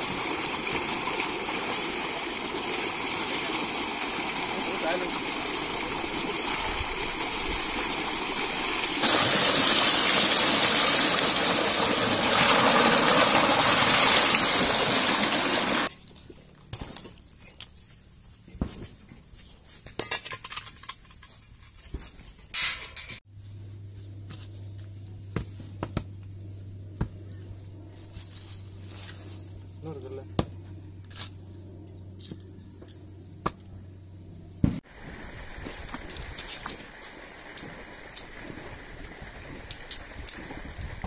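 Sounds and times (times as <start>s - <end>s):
water gushing: 0.0s - 15.9s.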